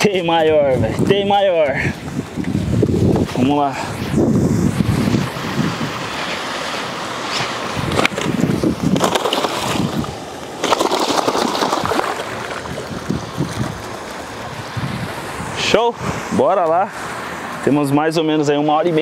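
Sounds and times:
wind on microphone: 0:00.0 - 0:17.2
water splashing and sloshing: 0:01.9 - 0:15.6.

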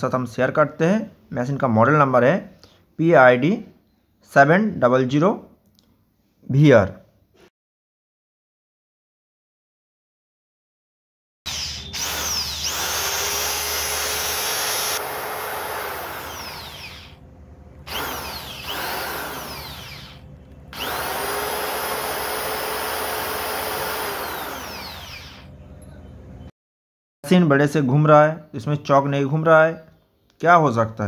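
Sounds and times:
drill motor whining: 0:11.5 - 0:17.2, 0:17.8 - 0:25.6.

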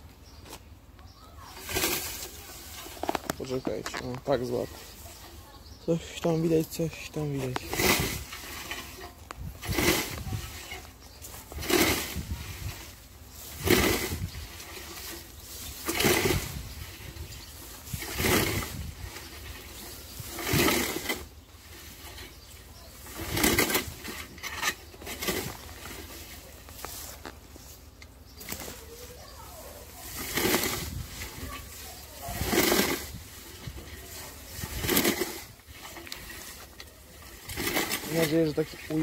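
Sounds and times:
scythe swishing through grass: 0:01.5 - 0:02.9, 0:07.4 - 0:39.0.

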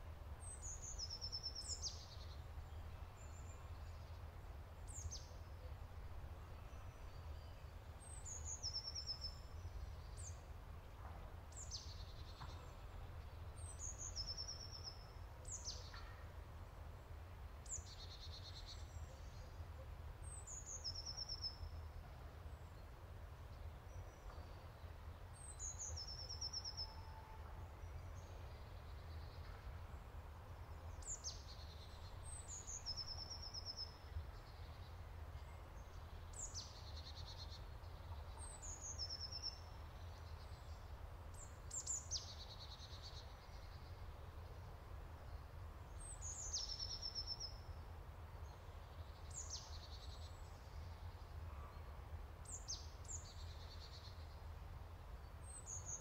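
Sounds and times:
songbird singing trills: 0:00.4 - 0:04.2, 0:06.4 - 0:10.5, 0:11.5 - 0:16.2, 0:20.2 - 0:21.9, 0:23.5 - 0:29.8, 0:30.9 - 0:47.8.

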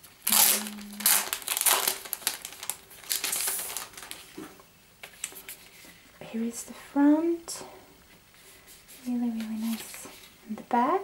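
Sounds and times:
plastic packaging crinkling: 0:00.0 - 0:05.8.

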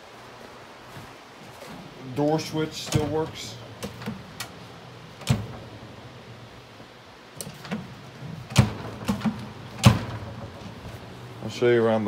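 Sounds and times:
microwave door latch clicking: 0:02.9 - 0:04.6, 0:05.2 - 0:05.7, 0:07.4 - 0:10.8
microwave door knocking on frame: 0:08.5 - 0:10.7.

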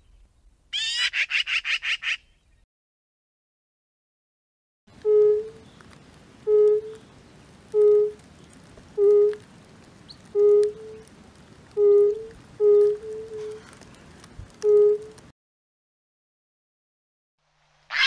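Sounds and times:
toad calling: 0:00.7 - 0:02.3, 0:07.7 - 0:08.3, 0:09.0 - 0:09.4, 0:10.1 - 0:11.1, 0:11.8 - 0:13.6.

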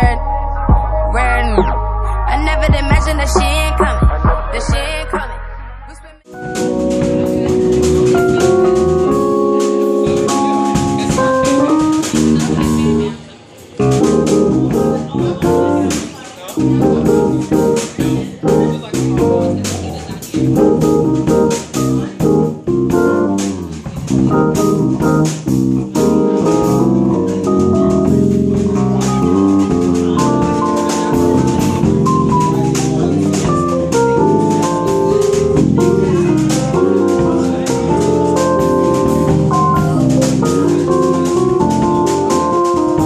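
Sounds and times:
electric bass guitar: 0:00.0 - 0:13.2, 0:13.8 - 0:16.0, 0:16.6 - 0:43.0
keyboard chords: 0:00.0 - 0:43.0
steady drum beat: 0:02.6 - 0:05.2, 0:06.3 - 0:13.2, 0:13.8 - 0:43.0.

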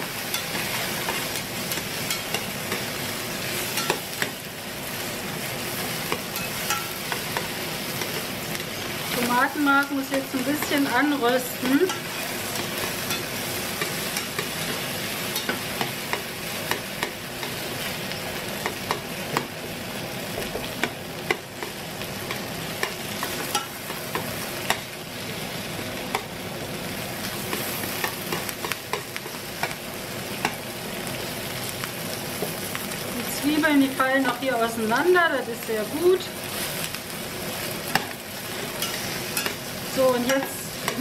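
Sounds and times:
onions sizzling in a frying pan: 0:00.0 - 0:41.0
metal tongs clicking against pan: 0:00.3 - 0:02.9, 0:03.8 - 0:04.4, 0:06.1 - 0:08.7, 0:09.8 - 0:17.6, 0:20.8 - 0:24.8, 0:37.9 - 0:38.2, 0:38.8 - 0:41.0.

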